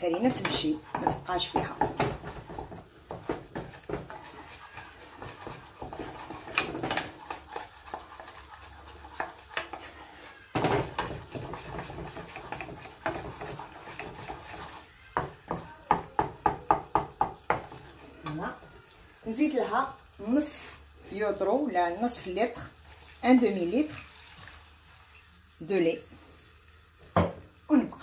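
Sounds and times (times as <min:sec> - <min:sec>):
spatula knocking against pan: 0:00.0 - 0:04.2, 0:10.6 - 0:14.6, 0:15.2 - 0:18.4
spatula tapping: 0:00.0 - 0:09.9, 0:10.6 - 0:18.4
roux bubbling: 0:00.0 - 0:15.2
wooden spatula scraping a saucepan: 0:00.0 - 0:15.7, 0:17.4 - 0:19.7.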